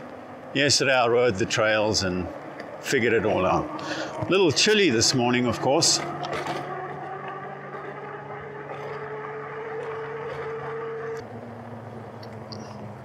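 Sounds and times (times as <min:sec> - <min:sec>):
electric bike motor whining: 0:03.1 - 0:13.0.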